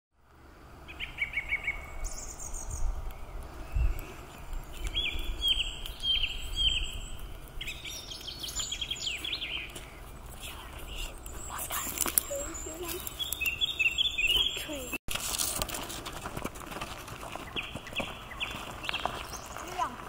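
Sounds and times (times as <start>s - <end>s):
songbirds singing: 0.8s - 15.0s, 17.3s - 20.0s.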